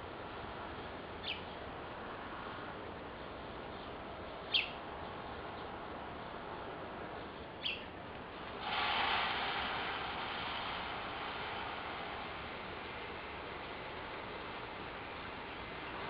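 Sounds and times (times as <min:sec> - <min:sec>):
background hiss: 0:00.0 - 0:16.0
falling bird chirps: 0:07.6 - 0:07.9
loud rushing noise: 0:08.4 - 0:16.0.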